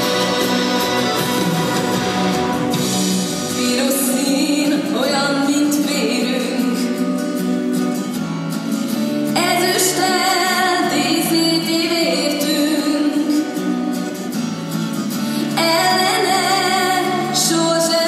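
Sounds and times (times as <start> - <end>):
instrumental accompaniment: 0.0 - 9.4
woman singing: 3.4 - 8.0, 9.2 - 14.1, 15.4 - 18.0.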